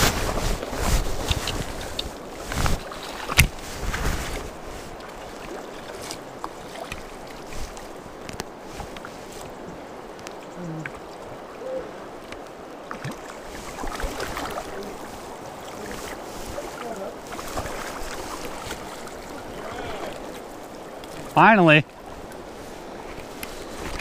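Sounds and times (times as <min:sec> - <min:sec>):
river current rushing: 0:00.0 - 0:24.0
net splashing in water: 0:16.7 - 0:20.2.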